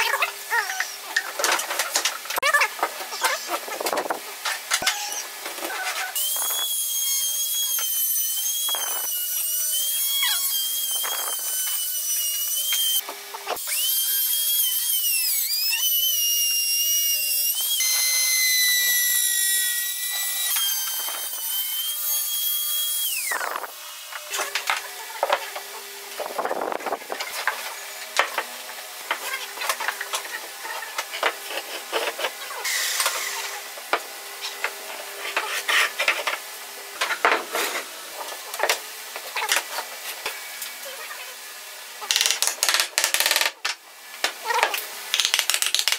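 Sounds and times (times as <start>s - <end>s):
router cutting wood whine: 6.1s - 25.8s.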